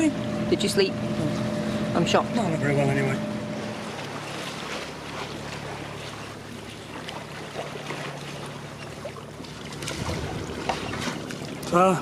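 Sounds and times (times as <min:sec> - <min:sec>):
low steady hum: 0:00.0 - 0:12.0
water splashing along boat hull: 0:00.0 - 0:12.0
wind noise: 0:09.9 - 0:11.0.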